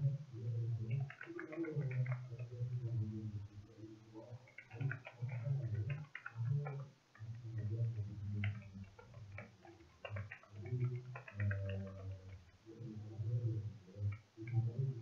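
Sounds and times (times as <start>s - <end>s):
keyboard keystroke clicks: 8.4s - 12.4s.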